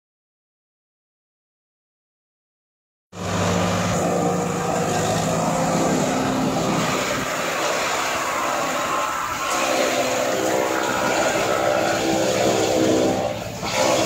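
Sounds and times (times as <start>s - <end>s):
forage chopper cutting grass: 3.2s - 14.0s
tractor engine hum: 3.2s - 14.0s.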